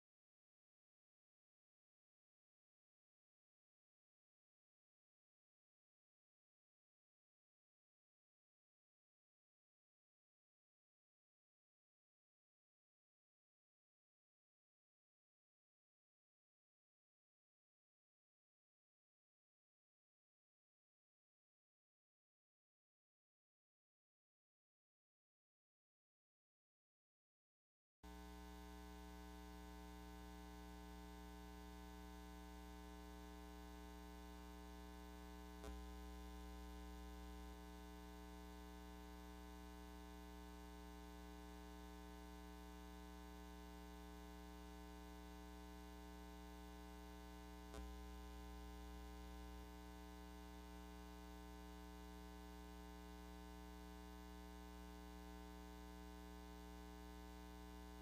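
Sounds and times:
electrical mains hum: 28.1s - 58.0s.

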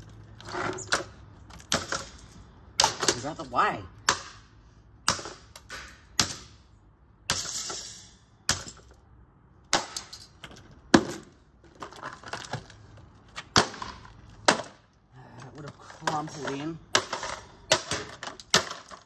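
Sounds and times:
hard blows cracking: 4.0s - 6.6s, 9.7s - 10.2s, 13.4s - 14.9s
plastic and metal clattering: 10.1s - 14.8s, 15.4s - 19.0s.

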